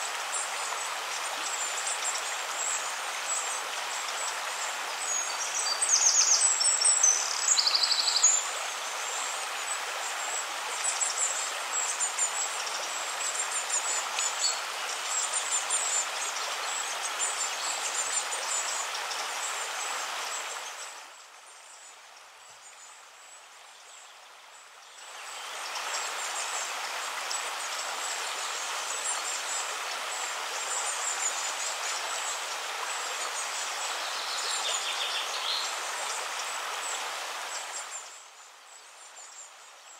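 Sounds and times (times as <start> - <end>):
flowing water: 0.0 - 39.9
small birds chirping: 0.7 - 8.5.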